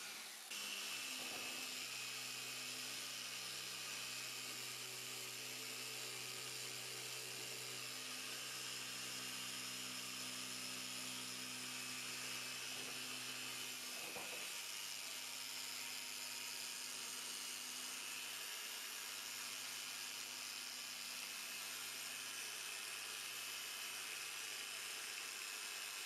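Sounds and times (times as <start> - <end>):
orbital sander whirring on plastic: 0.0 - 26.0.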